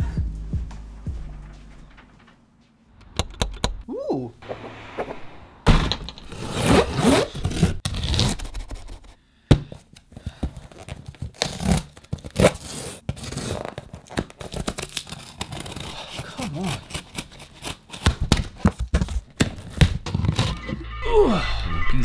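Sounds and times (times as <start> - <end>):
cardboard scraping and rustling: 6.2 - 9.1
knife slicing packing tape: 6.3 - 9.1, 11.3 - 18.6
tape peeled and torn: 6.6 - 9.1, 10.8 - 18.8.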